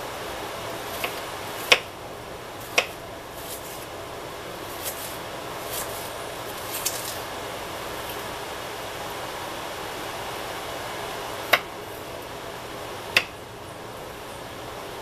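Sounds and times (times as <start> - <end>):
room hiss: 0.0 - 15.0
knife chopping on wooden board: 0.9 - 1.9, 2.6 - 3.9, 4.7 - 7.1, 11.5 - 11.7, 13.1 - 13.4.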